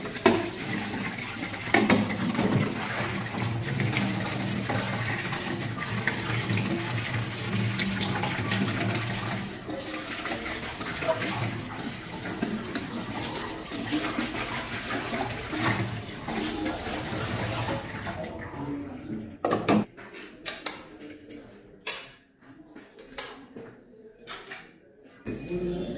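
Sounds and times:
tap water running into steel sink: 0:00.0 - 0:18.6.

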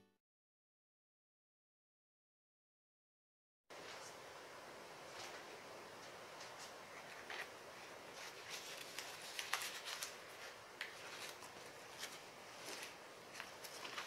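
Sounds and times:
dried fish skin crackling: 0:08.2 - 0:14.0.

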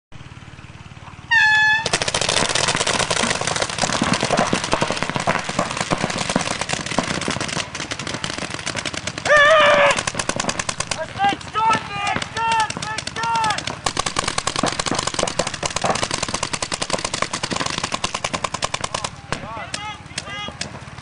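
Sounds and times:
short horn tone: 0:01.2 - 0:01.9
paintball markers firing rapidly: 0:01.8 - 0:21.0
person shouting: 0:09.3 - 0:10.0, 0:11.0 - 0:13.7, 0:19.4 - 0:20.6.

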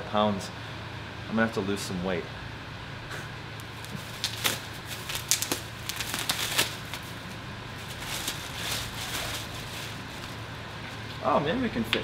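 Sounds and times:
steady low hum: 0:00.0 - 0:12.0
plastic wrap crinkling: 0:03.6 - 0:11.1.

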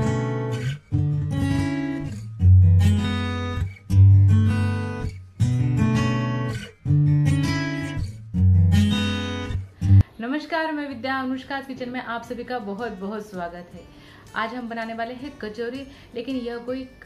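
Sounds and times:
strummed acoustic guitar chords: 0:00.0 - 0:10.0.

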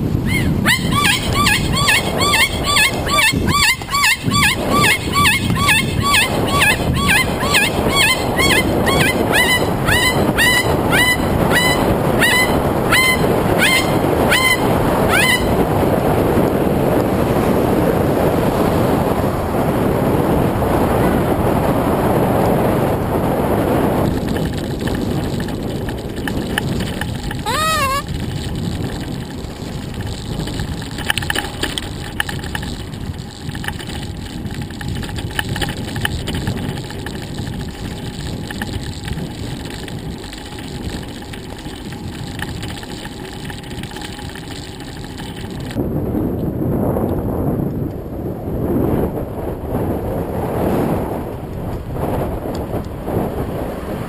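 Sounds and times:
bicycle rattling on road: 0:00.0 - 0:46.2
wind rushing over microphone: 0:00.0 - 0:54.0
cockatoo wavering call: 0:00.2 - 0:15.6, 0:27.4 - 0:28.1.

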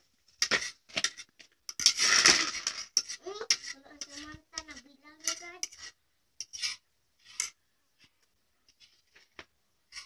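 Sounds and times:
forks scraping on plates: 0:00.5 - 0:07.6
child's voice: 0:03.2 - 0:05.8.

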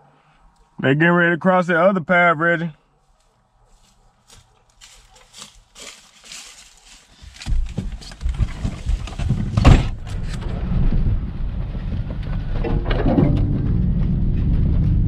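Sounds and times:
truck engine and road rumble: 0:00.0 - 0:15.0
loud thump: 0:09.4 - 0:10.0.

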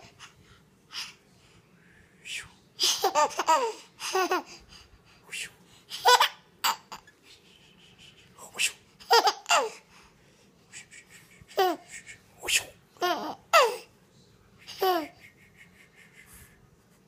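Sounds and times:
baby laughing: 0:02.8 - 0:04.6, 0:05.9 - 0:07.4, 0:09.0 - 0:09.9, 0:10.7 - 0:12.3, 0:13.0 - 0:13.9, 0:14.6 - 0:16.4.

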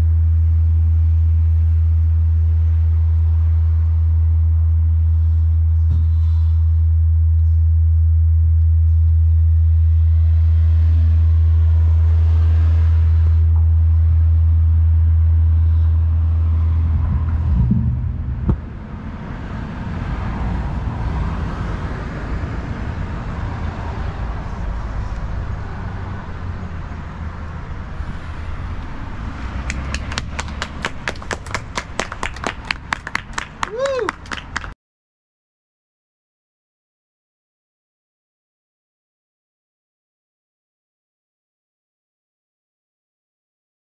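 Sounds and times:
soft rumble and hiss: 0:00.0 - 0:21.4
loud low rumble: 0:00.0 - 0:33.7
sharp knock: 0:17.5 - 0:18.7
hand clapping: 0:29.6 - 0:34.8.

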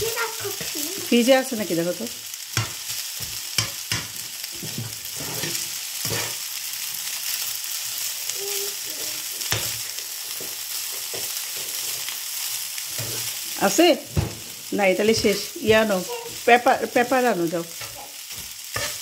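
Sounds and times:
pasta sizzling in a frying pan: 0:00.0 - 0:19.0
spatula scraping a pan: 0:02.6 - 0:06.6, 0:09.4 - 0:13.8, 0:15.0 - 0:19.0.

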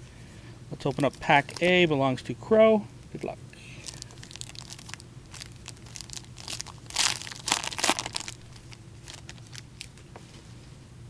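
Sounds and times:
wrapper crinkling as torn open: 0:03.8 - 0:10.0.

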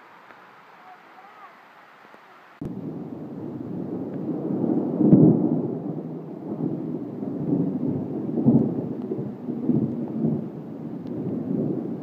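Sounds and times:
waterfall rushing: 0:00.0 - 0:02.7.

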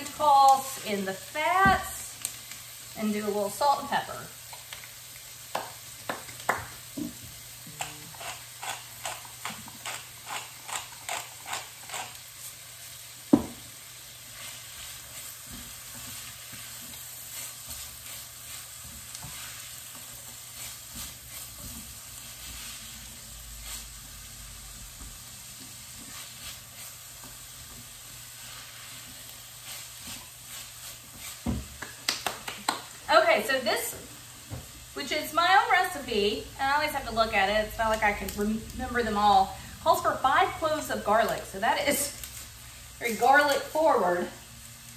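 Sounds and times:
vegetables sizzling in a saucepan: 0:00.0 - 0:44.9
spoon scraping a pan: 0:07.8 - 0:12.6, 0:14.4 - 0:24.0, 0:25.6 - 0:27.4.

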